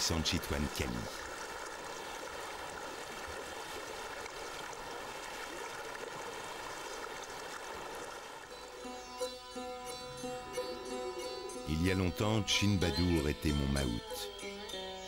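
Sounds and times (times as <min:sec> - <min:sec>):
river water rushing and splashing: 0:00.0 - 0:09.0.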